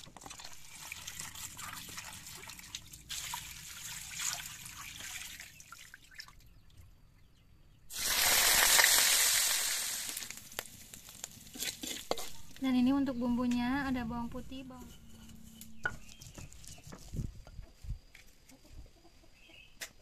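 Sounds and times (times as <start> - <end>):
water sloshing in a basin: 0.0 - 6.8.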